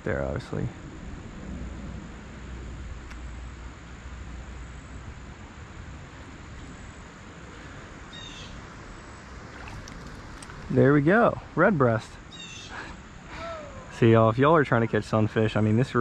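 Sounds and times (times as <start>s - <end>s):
low hiss: 0.0s - 16.0s
bird chirp: 8.0s - 8.7s, 12.3s - 13.0s.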